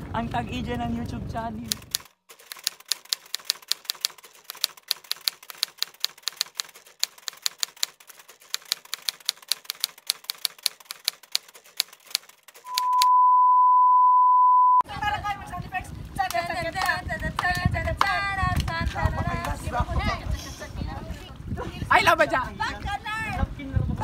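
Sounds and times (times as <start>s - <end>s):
typewriter keys clicking: 1.7s - 12.7s
loud steady beep: 12.7s - 14.8s.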